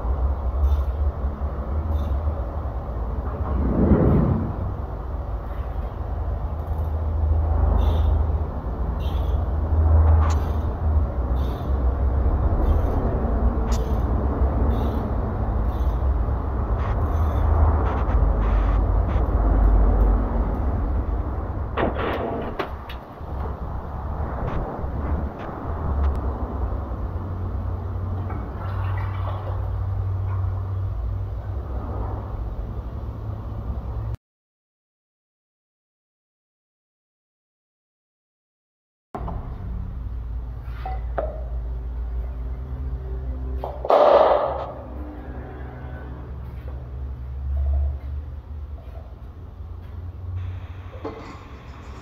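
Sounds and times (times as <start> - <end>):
workshop machinery rumble: 0.0 - 34.0, 39.2 - 52.0
steady low hum: 0.0 - 34.2
sharp metallic clicks: 13.6 - 14.2
oil trickling into funnel: 28.4 - 29.8.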